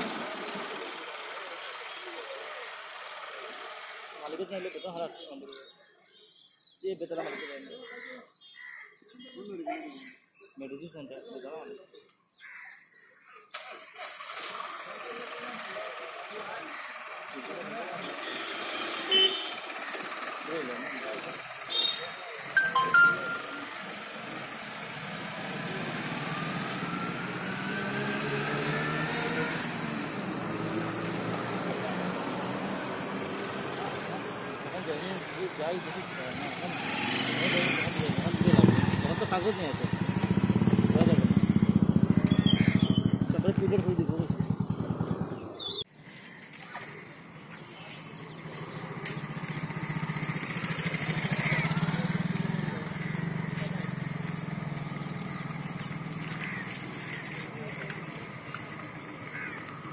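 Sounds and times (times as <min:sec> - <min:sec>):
vehicle engine whining: 0:13.6 - 0:45.9, 0:47.2 - 0:59.9.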